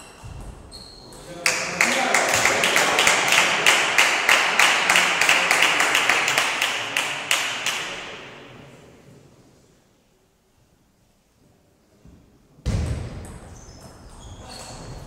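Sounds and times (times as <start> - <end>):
crowd noise: 1.3 - 9.2
spectators clapping in unison: 1.4 - 8.1.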